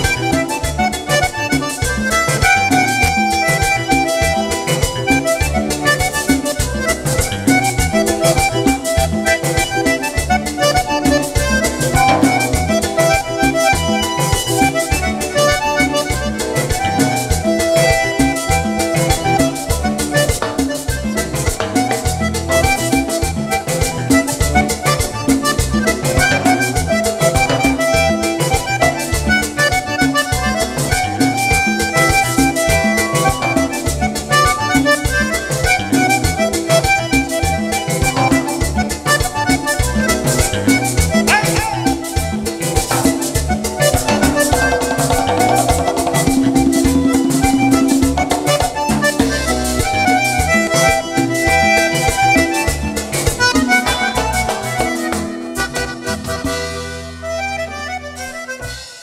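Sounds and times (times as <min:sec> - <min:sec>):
button accordion: 0:00.0 - 0:59.0
drums keeping a beat: 0:00.0 - 0:59.0
guitar: 0:00.0 - 0:59.0.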